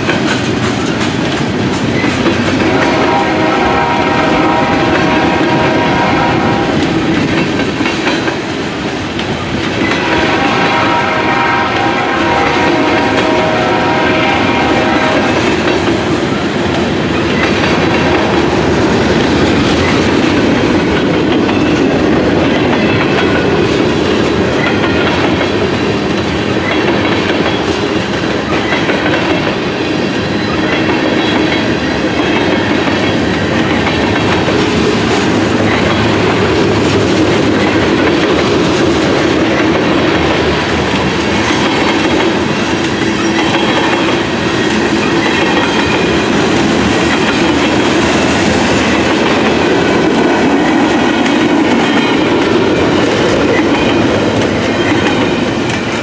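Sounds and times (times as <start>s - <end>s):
freight train rumble and clatter: 0.0s - 56.0s
train horn blast: 2.6s - 7.0s, 9.9s - 15.6s.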